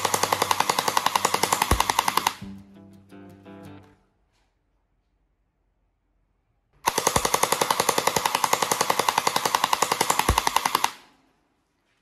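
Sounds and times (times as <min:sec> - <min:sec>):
gel blaster firing full-auto: 0:00.0 - 0:02.4, 0:06.9 - 0:11.0.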